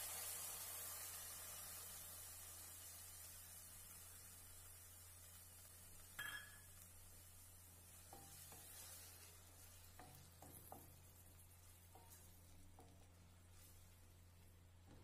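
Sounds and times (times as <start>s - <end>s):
metal spatula clinking on pan: 6.2s - 6.7s.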